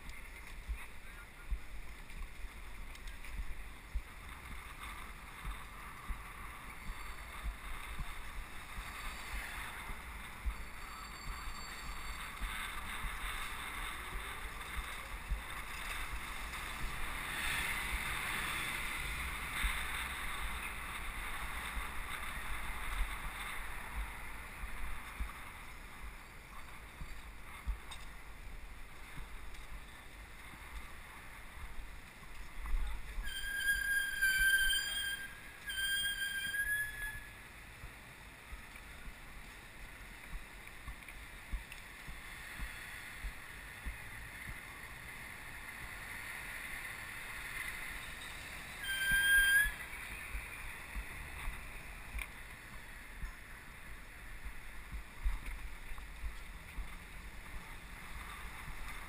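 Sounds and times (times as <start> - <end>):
wind buffeting microphone: 0.0 - 33.4
street traffic: 0.0 - 59.0.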